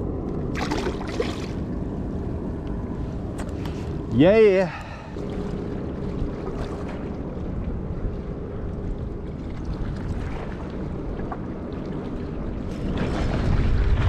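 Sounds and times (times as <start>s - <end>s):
wind buffeting microphone: 0.0s - 14.0s
waves lapping at shore: 3.1s - 14.0s.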